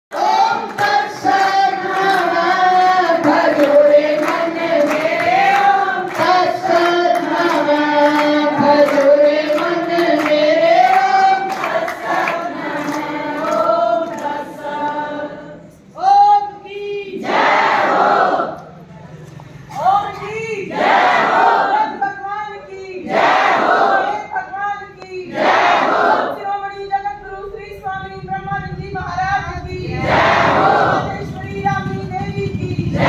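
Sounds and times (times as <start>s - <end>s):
group chanting: 0.1s - 15.8s, 16.8s - 18.8s, 20.6s - 22.0s, 23.0s - 24.3s, 25.2s - 26.4s, 29.8s - 31.3s.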